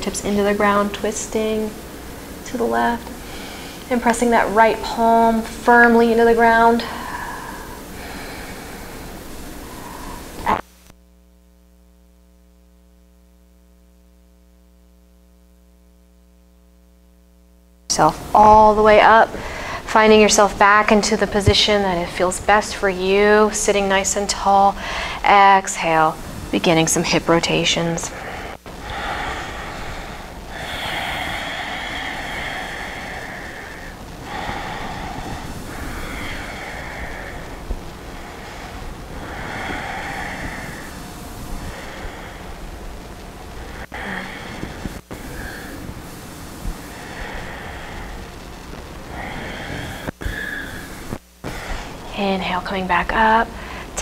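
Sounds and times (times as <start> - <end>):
faint mains hum: 0.0 - 54.0
woman breathing deeply: 1.5 - 3.9, 6.6 - 10.6, 19.3 - 20.0, 24.8 - 25.3, 28.0 - 52.2, 53.5 - 54.0
loud burst of noise: 28.1 - 52.1.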